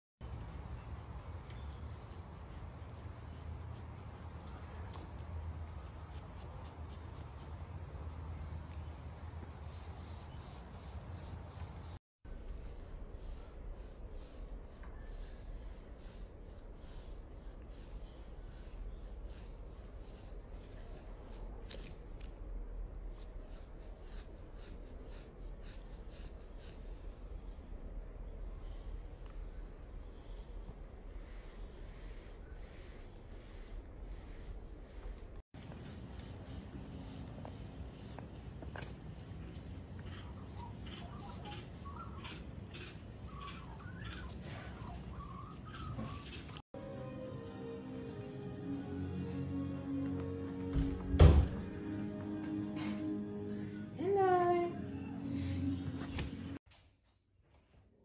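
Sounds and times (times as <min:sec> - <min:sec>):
hand scratching fur: 0:00.2 - 0:22.3, 0:23.1 - 0:27.2, 0:35.5 - 0:46.6.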